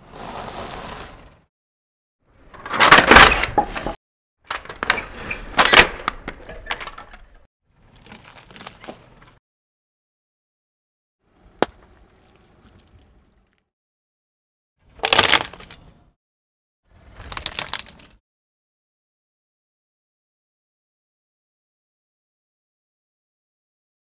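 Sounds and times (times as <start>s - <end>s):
car tyre crushing brittle things: 7.9s - 9.4s, 15.0s - 15.9s, 17.0s - 18.2s.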